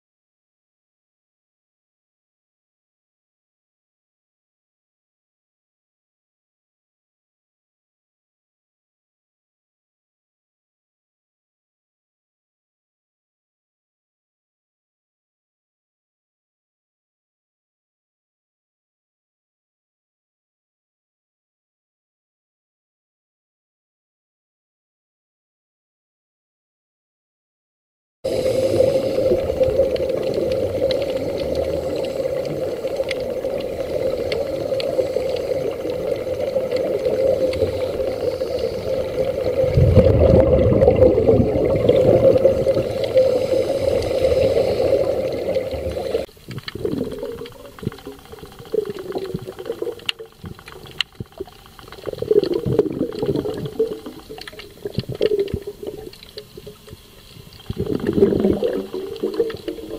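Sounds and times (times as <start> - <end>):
underwater bubbling: 28.3 - 59.9
underwater rushing water: 28.3 - 59.9.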